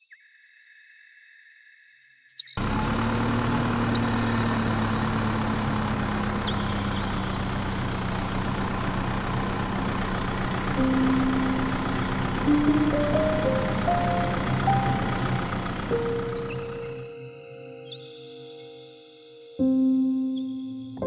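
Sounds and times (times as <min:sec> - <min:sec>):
tractor engine idling: 0:02.6 - 0:17.2
simple tune of rising notes: 0:02.7 - 0:17.4.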